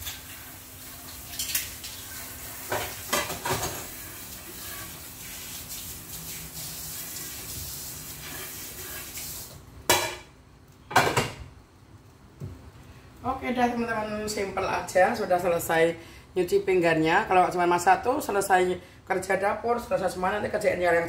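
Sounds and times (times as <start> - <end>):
running water hiss: 0.0 - 9.6
pots and utensils clattering: 1.2 - 5.0, 10.9 - 11.4
pots clanking set down: 2.7 - 3.9, 10.9 - 11.5.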